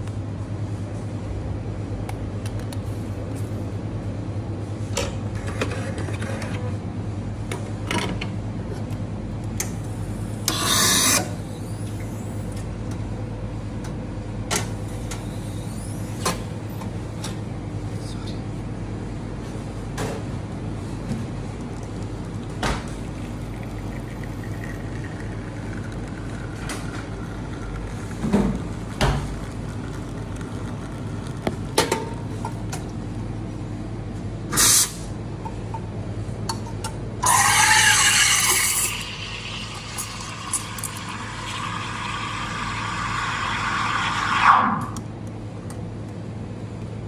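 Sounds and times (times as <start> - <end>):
espresso machine pump humming: 9.8 - 12.6, 20.6 - 33.4, 37.2 - 45.0.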